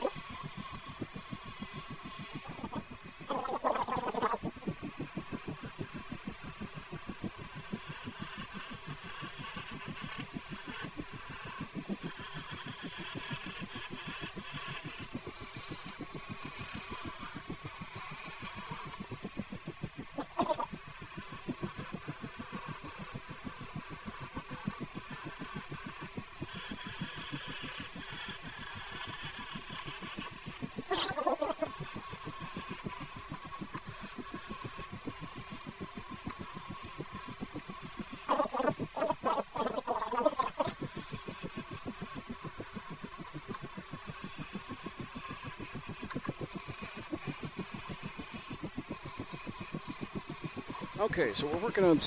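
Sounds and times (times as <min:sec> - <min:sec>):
faint hum: 0:00.0 - 0:52.0
tool hissing on spinning wood: 0:40.1 - 0:52.0.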